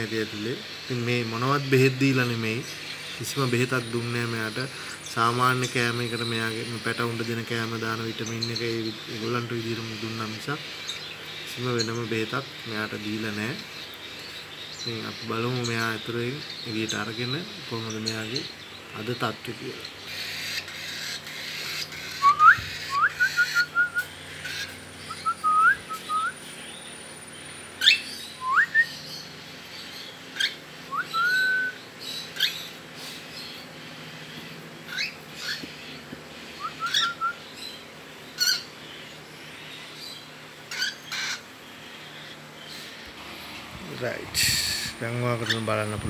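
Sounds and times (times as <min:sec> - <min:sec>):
cockatiel chirping: 0:36.6 - 0:37.4, 0:40.7 - 0:41.4.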